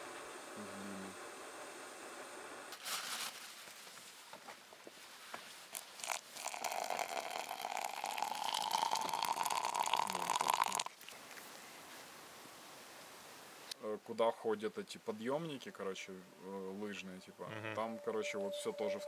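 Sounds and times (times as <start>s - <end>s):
water pouring into plastic cup: 5.8s - 11.2s.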